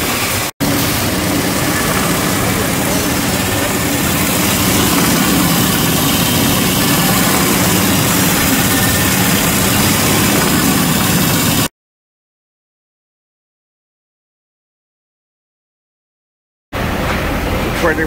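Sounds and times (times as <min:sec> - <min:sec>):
abrasive wheel grinding steel: 0:00.4 - 0:11.7
low machine hum: 0:00.6 - 0:11.7.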